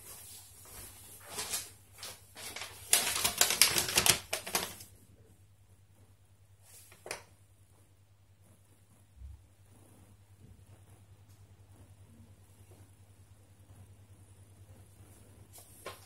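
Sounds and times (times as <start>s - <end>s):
packaging rustling and crackling: 1.2s - 4.9s.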